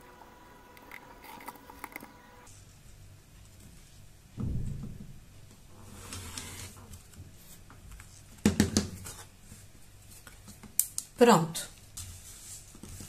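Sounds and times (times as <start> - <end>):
soft brush: 12.0 - 13.0.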